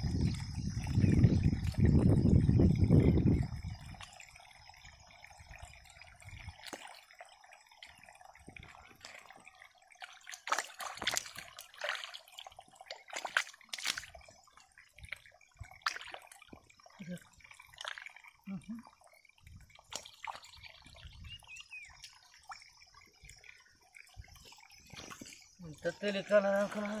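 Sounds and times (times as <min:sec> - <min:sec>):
splashes and squelches: 0:00.0 - 0:27.0
hands sloshing in muddy water: 0:07.8 - 0:18.2, 0:24.4 - 0:27.0.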